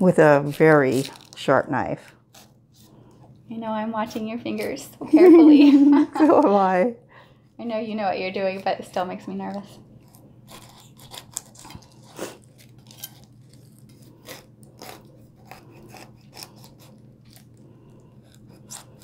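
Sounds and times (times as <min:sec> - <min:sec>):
serrated knife sawing pineapple: 0:10.1 - 0:17.6.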